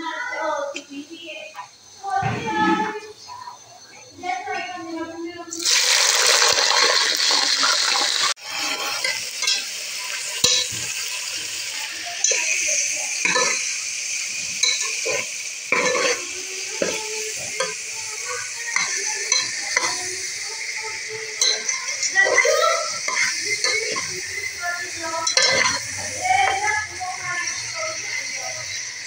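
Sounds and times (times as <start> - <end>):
food sizzling in hot oil: 5.5 - 29.0
metal spatula scraping a pot: 7.8 - 9.7, 12.2 - 13.7, 14.3 - 20.3, 21.4 - 24.3, 25.2 - 26.6.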